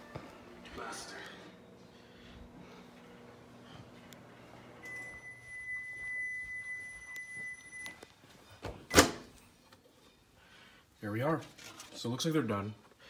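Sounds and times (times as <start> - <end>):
microwave beep: 4.7 - 8.0.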